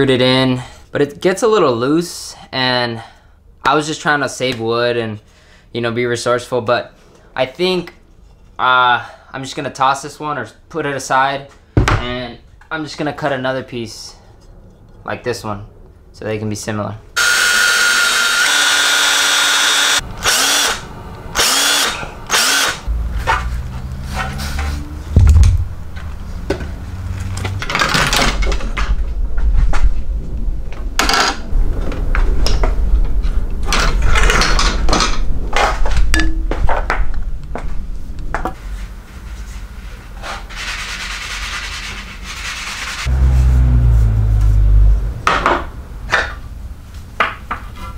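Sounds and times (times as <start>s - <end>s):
cordless drill whining: 17.2s - 20.8s, 21.4s - 22.8s.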